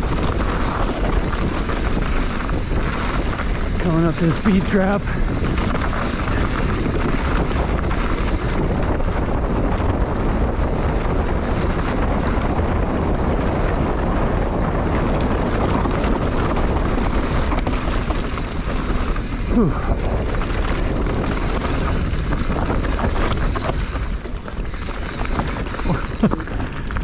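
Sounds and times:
tyres rumbling on dirt trail: 0:00.0 - 0:27.0
wind rushing over microphone: 0:00.0 - 0:27.0.

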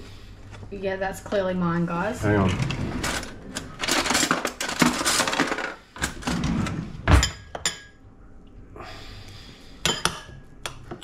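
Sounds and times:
utensils rattling in drawer: 0:02.5 - 0:06.8.

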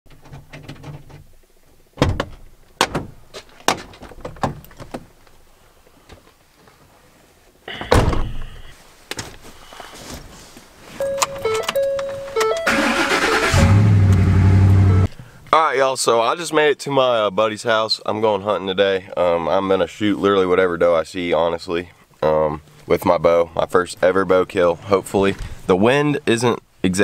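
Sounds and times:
heavy thunk: 0:07.8 - 0:08.6
dashboard chime: 0:11.0 - 0:12.9
starter cranking engine: 0:12.7 - 0:14.4.

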